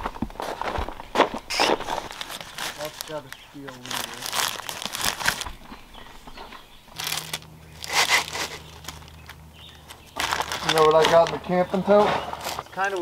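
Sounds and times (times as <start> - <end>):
plastic packaging crinkling: 1.4 - 6.3, 6.9 - 11.7.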